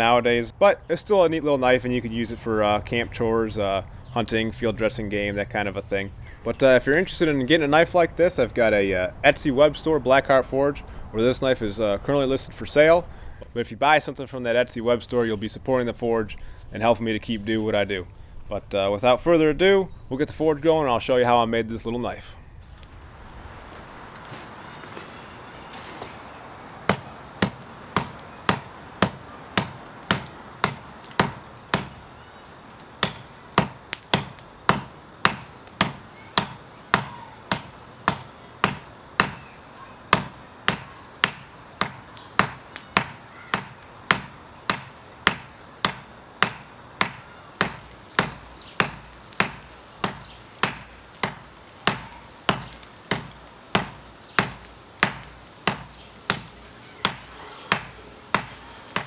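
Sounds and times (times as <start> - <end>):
hammer ringing on anvil: 26.9 - 32.1, 33.0 - 59.0.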